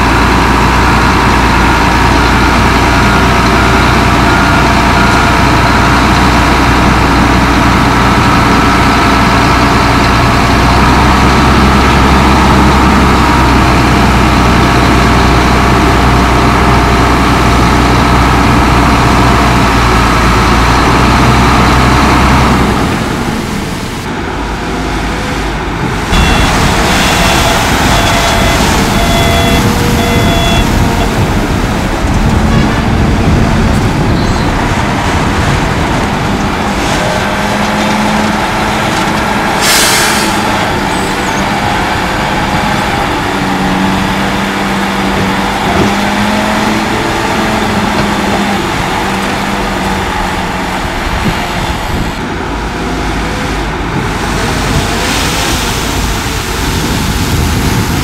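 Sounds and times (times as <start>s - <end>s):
bulldozer diesel engine running: 0.0s - 58.0s
short high-pitched beeps: 26.2s - 31.2s.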